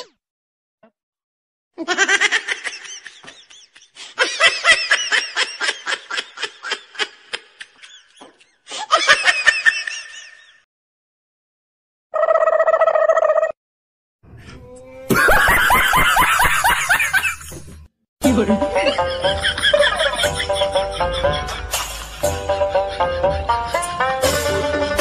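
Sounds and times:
rhythmic giggles: 18.8s - 25.0s.

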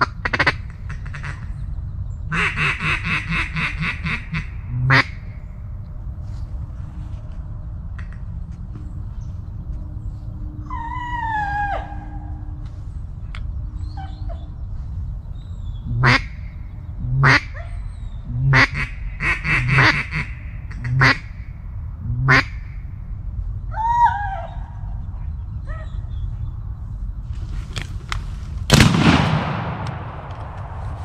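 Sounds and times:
duck quacking: 2.3s - 5.2s, 15.9s - 16.4s, 17.1s - 17.6s, 18.4s - 21.3s, 22.2s - 22.6s.

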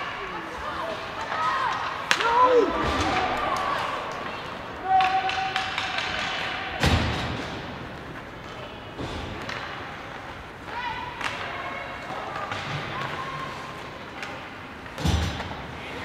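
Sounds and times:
people shouting: 0.7s - 6.8s.

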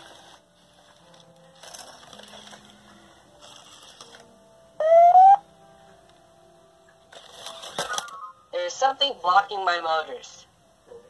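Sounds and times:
rising electronic tone: 4.8s - 5.4s.

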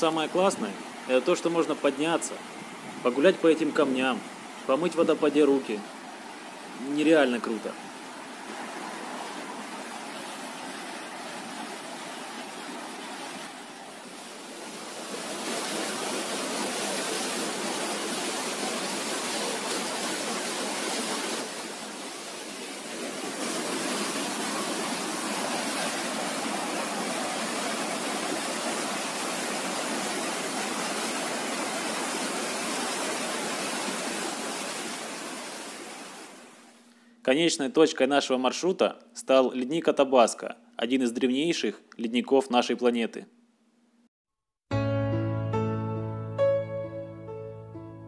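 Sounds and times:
waterfall rushing: 0.0s - 36.6s.

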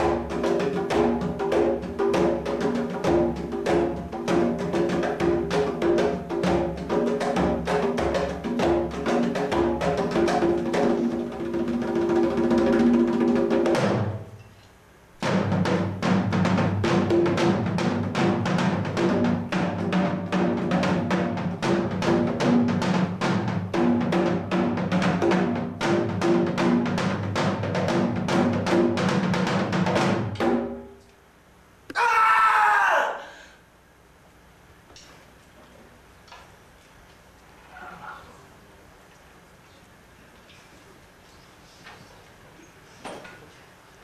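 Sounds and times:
music with fast drum beat: 0.0s - 14.2s, 15.2s - 30.9s
short loud voice: 31.9s - 33.6s.

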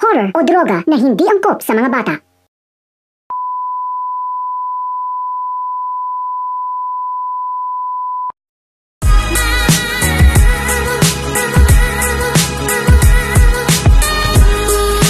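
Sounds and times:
music: 9.0s - 15.0s.

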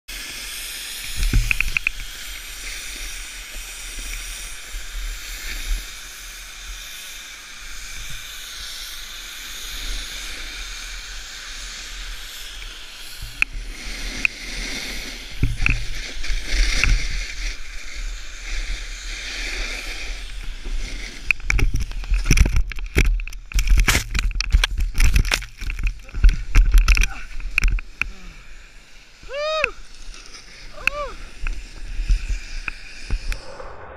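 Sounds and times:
snowboard scraping on snow: 0.1s - 22.6s, 23.6s - 33.9s
wind on microphone: 30.8s - 33.9s.

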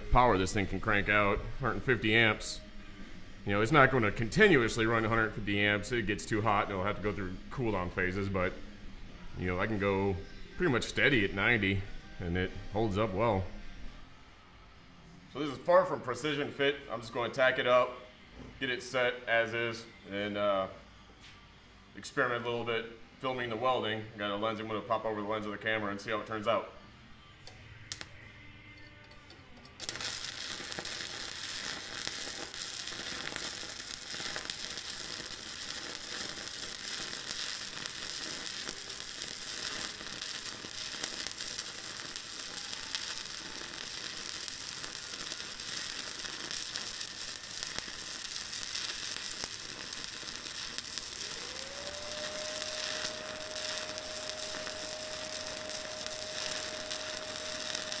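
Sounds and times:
welding arc crackling: 29.8s - 58.0s
thin steady whine: 38.0s - 58.0s.

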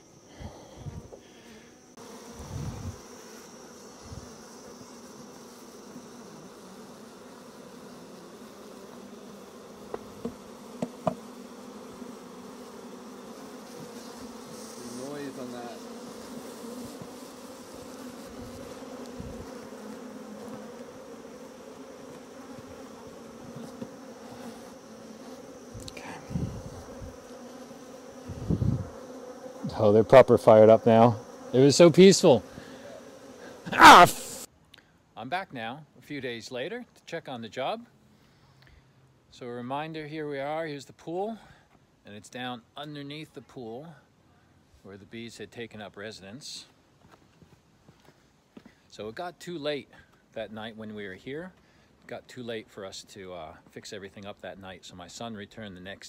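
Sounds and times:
bees buzzing: 0.0s - 34.5s.

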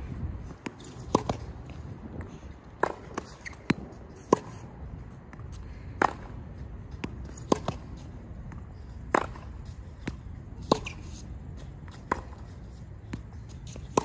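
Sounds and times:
racket striking tennis ball: 0.6s - 1.7s, 2.8s - 4.7s, 5.3s - 14.0s
ball bouncing on hard court: 0.6s - 1.8s, 2.8s - 4.6s, 6.0s - 8.0s, 9.1s - 11.0s.

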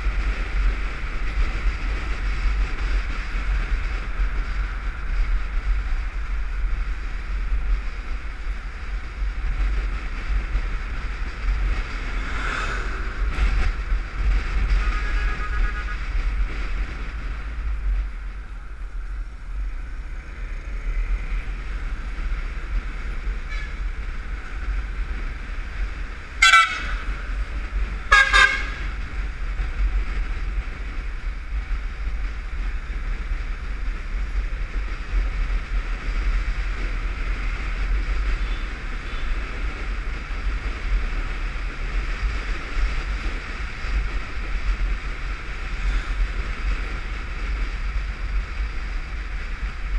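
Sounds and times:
wind rushing over microphone: 0.0s - 49.9s
vehicle horn beeps: 14.7s - 16.0s, 23.4s - 23.8s, 28.1s - 28.8s.

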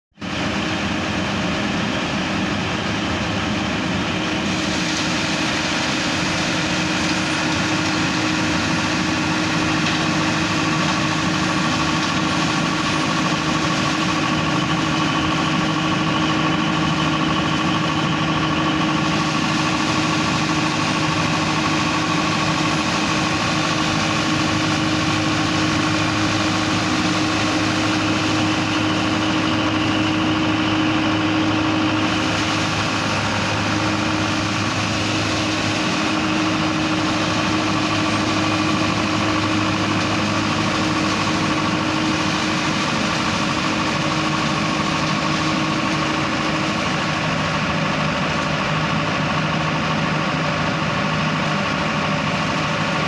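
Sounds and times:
engine and fan drone: 0.1s - 53.0s
steady whine: 0.2s - 53.0s.

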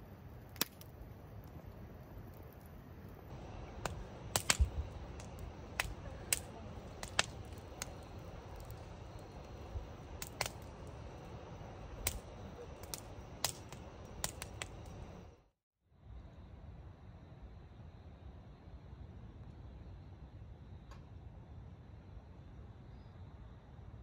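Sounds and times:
campfire crackling and popping: 0.1s - 15.5s
low rumble: 3.3s - 15.5s.

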